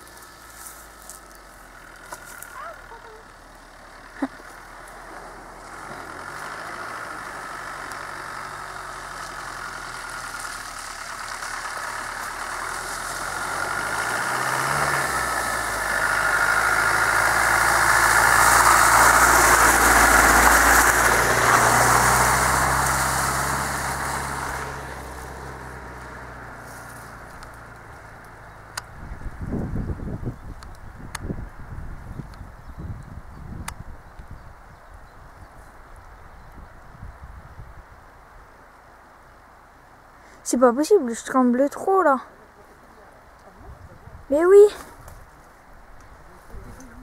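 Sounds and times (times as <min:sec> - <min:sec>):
engine at low revs passing: 0:00.0 - 0:37.9.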